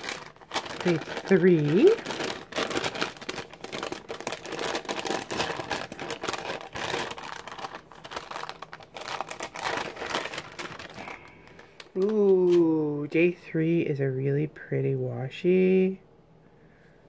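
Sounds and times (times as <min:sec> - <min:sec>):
paper envelope crinkling: 0:00.0 - 0:12.7.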